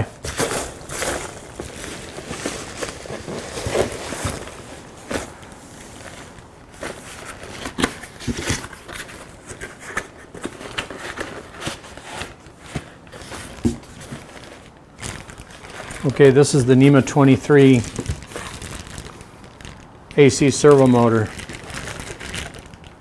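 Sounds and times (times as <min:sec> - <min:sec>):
packing peanuts rustling: 0:00.0 - 0:23.0.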